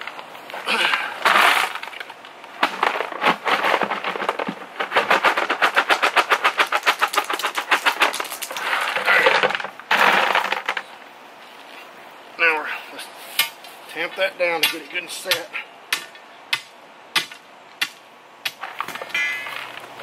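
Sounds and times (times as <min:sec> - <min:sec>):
gravel clattering from a bucket: 0:00.0 - 0:10.9
sliding gravel rush: 0:00.0 - 0:11.9, 0:18.6 - 0:20.0.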